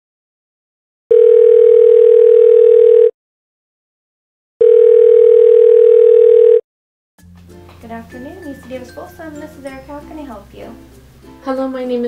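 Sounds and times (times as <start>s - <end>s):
telephone ringback tone: 1.1s - 3.1s, 4.6s - 6.6s.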